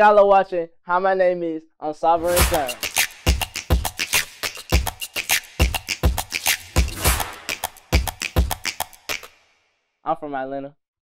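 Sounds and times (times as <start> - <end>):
snappy hi-hat clicks: 2.2 - 9.4
deep kick drums: 2.4 - 4.0, 5.6 - 8.6.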